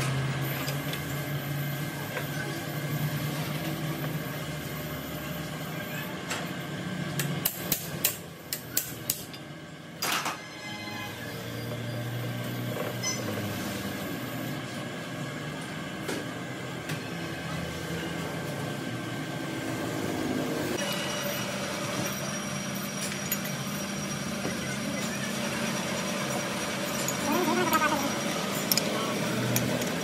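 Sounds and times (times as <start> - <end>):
lathe machine hum and whine: 10.4 - 30.0.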